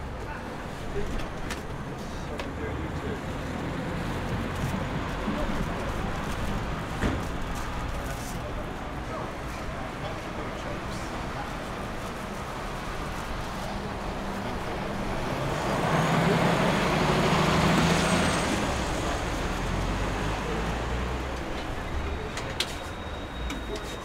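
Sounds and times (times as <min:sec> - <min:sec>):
heavy vehicle passing: 0:13.3 - 0:22.3.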